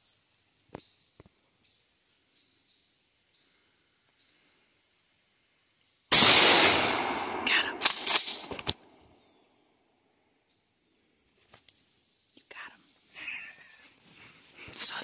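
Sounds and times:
gunshot: 0:06.1 - 0:08.8
sharp clicks and knocks: 0:07.1 - 0:08.8.

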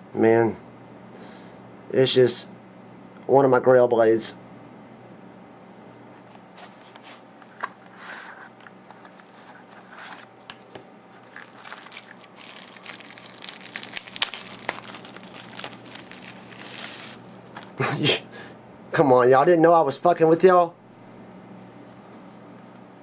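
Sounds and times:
bubble wrap crinkling: 0:11.1 - 0:17.8.

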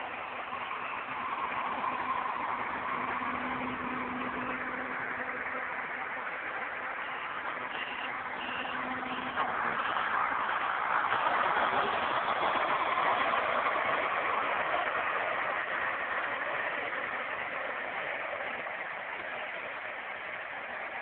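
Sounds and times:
road roller engine running: 0:00.0 - 0:21.0.

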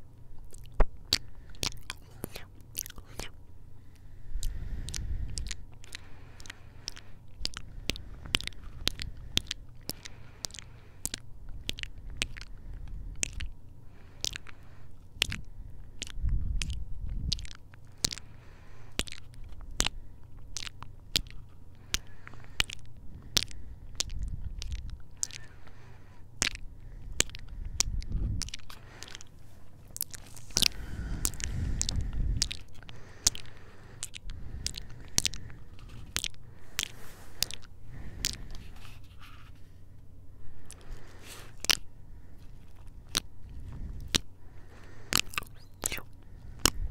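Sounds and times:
kisses and lip smacks: 0:00.4 - 0:03.4, 0:04.4 - 0:12.5, 0:15.2 - 0:18.3, 0:18.9 - 0:25.6, 0:27.2 - 0:29.3, 0:30.0 - 0:39.1, 0:45.1 - 0:46.8
low rumble: 0:26.5 - 0:45.3.

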